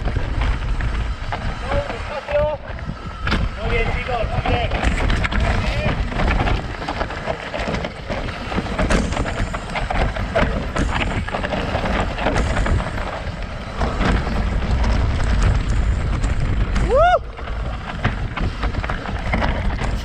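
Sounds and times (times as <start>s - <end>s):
bike rattling and clattering: 0.0s - 20.0s
wind rumbling on microphone: 0.0s - 20.0s
tyres crunching over stones: 4.8s - 20.0s.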